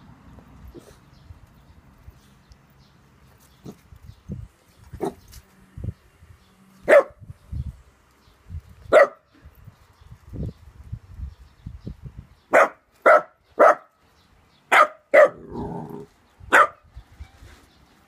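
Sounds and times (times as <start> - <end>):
dog barking: 6.8 - 7.2, 8.9 - 9.3, 12.5 - 13.9, 14.7 - 15.6, 16.5 - 16.8.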